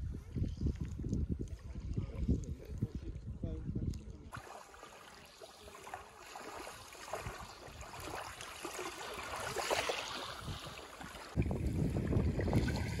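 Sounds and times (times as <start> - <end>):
wind rumble on microphone: 0.0 - 4.4, 9.1 - 13.0
wavelets lapping on gravel beach: 4.3 - 11.4.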